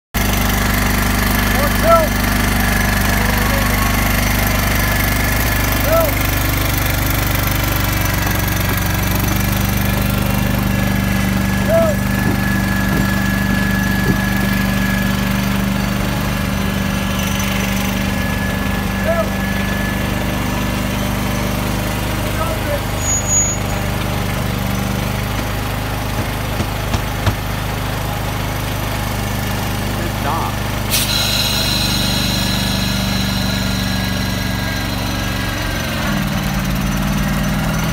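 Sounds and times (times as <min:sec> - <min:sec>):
small engine idling: 0:00.2 - 0:37.9
faint knocks: 0:12.0 - 0:15.1.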